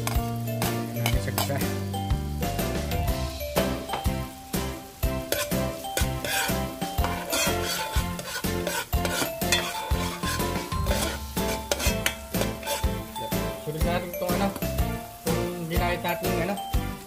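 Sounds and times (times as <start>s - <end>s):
background music: 0.0s - 17.0s
onions sizzling in a wok: 0.0s - 17.0s
spatula scraping a wok: 4.9s - 13.2s.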